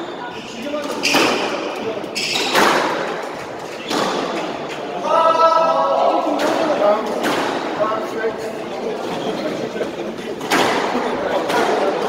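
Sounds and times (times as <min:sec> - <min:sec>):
ball hitting court walls: 0:02.3 - 0:04.6, 0:10.4 - 0:11.9
racket smacking squash ball: 0:02.4 - 0:04.6.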